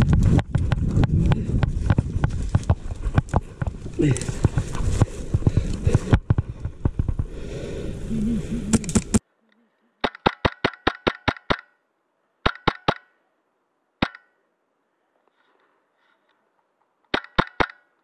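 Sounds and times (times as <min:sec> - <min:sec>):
airsoft rifle shots: 0:10.0 - 0:11.8, 0:12.4 - 0:13.1, 0:14.0 - 0:14.4, 0:17.1 - 0:17.9.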